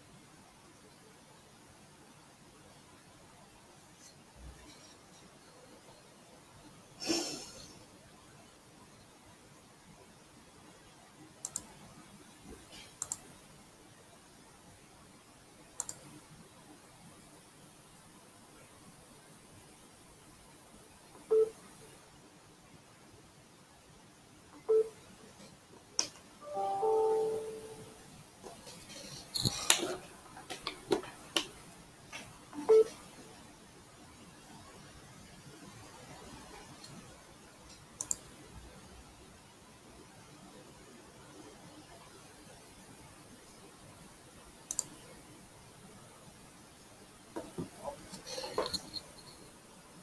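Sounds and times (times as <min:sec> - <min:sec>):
faint room hiss: 0:00.0 - 0:50.0
short beep: 0:26.4 - 0:27.9.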